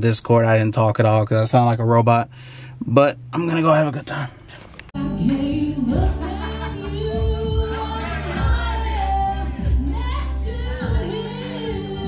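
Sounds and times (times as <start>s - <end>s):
backing track with bass line: 0.0s - 12.0s
person singing karaoke: 4.4s - 12.0s.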